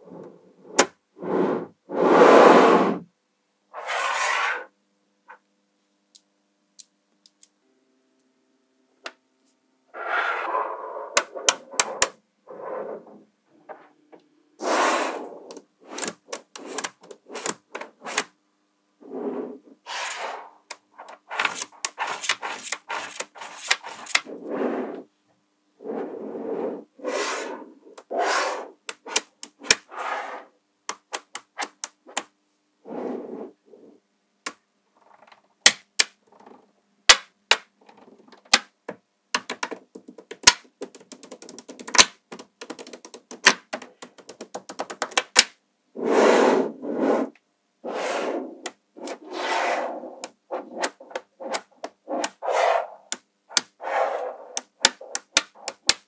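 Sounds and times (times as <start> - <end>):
balls rattling and sliding: 10.0 - 14.0, 14.6 - 18.3, 19.0 - 25.1, 46.0 - 56.0
magnetic balls clicking together: 15.5 - 18.2, 28.9 - 29.9, 30.9 - 32.3, 39.3 - 45.6, 53.1 - 53.8, 54.5 - 56.0.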